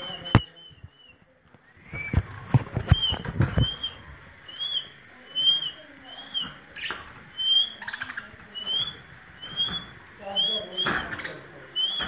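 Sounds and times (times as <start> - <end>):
wings flapping against cage wire: 0.0 - 4.2
parakeet chirps: 1.8 - 12.0.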